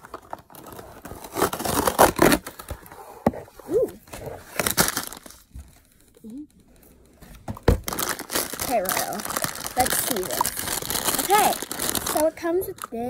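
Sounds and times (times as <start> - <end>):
cardboard box tearing: 0.2 - 3.0, 7.8 - 12.3.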